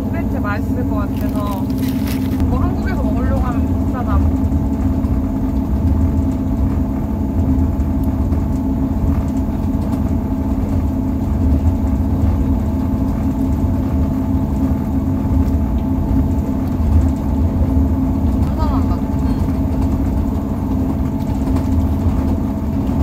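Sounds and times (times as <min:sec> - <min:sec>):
diesel train engine drone: 0:00.0 - 0:23.0.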